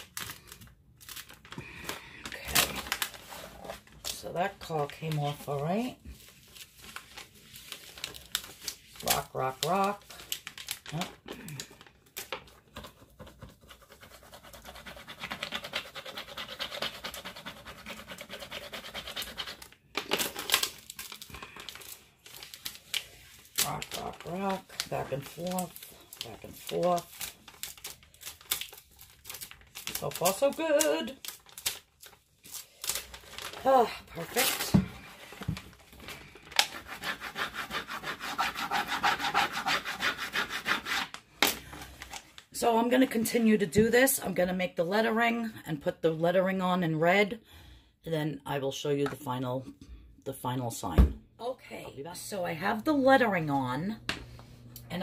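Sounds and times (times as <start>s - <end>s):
plastic tape crinkling: 0.0s - 12.8s, 19.2s - 37.0s.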